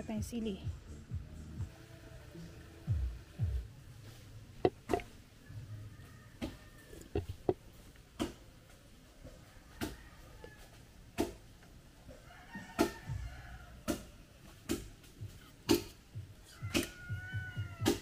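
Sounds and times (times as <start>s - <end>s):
faint chicken clucking: 1.6s - 18.0s
sharp knocks: 4.6s - 5.1s.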